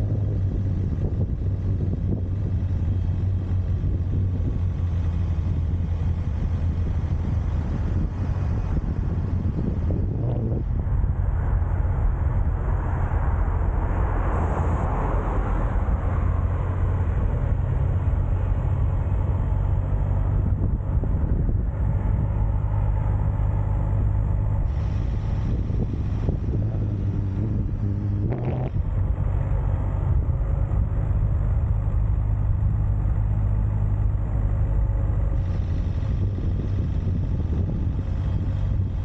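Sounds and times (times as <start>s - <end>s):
vehicle engine running: 0.0s - 14.2s, 15.2s - 39.0s.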